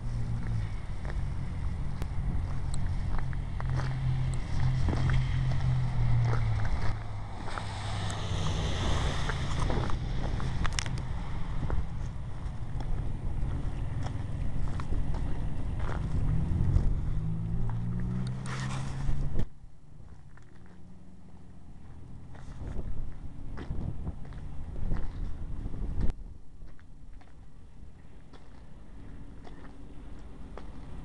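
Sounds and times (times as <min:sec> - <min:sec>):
wind on microphone: 0:00.0 - 0:19.5, 0:22.3 - 0:26.2
low engine-like hum: 0:00.0 - 0:31.0.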